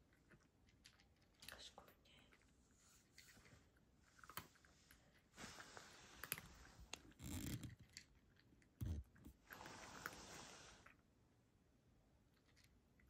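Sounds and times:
cat crunching dry kibble: 4.0 - 10.3.

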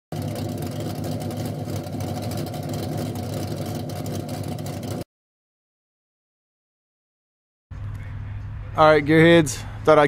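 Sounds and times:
car engine idling: 0.1 - 5.0.

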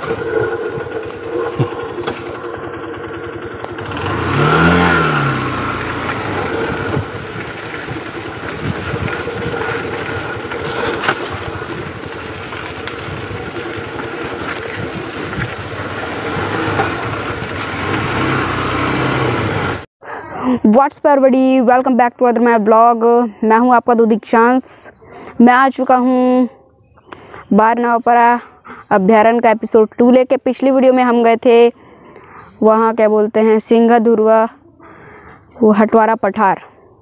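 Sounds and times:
motorcycle engine revving: 0.0 - 19.9.

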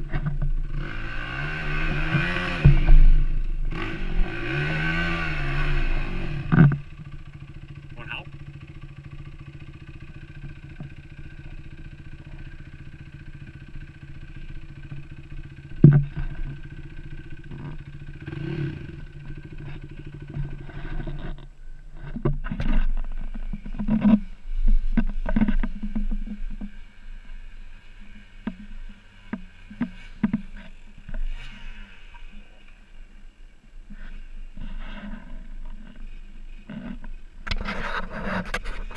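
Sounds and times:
dirt bike engine idling: 0.0 - 38.9
sharp knocks and clatters: 15.7 - 16.6.

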